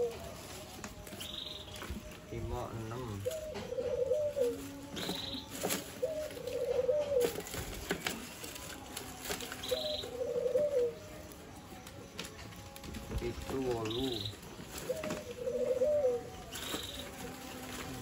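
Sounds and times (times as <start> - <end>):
dove cooing: 0.0 - 0.5, 2.4 - 11.2, 13.3 - 18.0.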